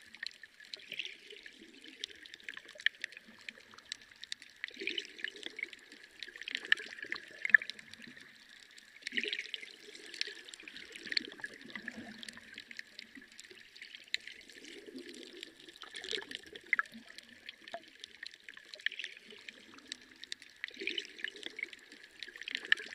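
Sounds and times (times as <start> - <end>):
water trickling and splashing: 0.0 - 22.9.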